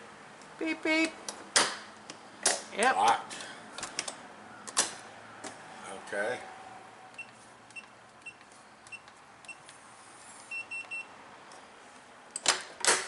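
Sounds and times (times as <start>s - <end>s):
keypad beeps: 7.2s - 9.6s, 10.5s - 11.1s.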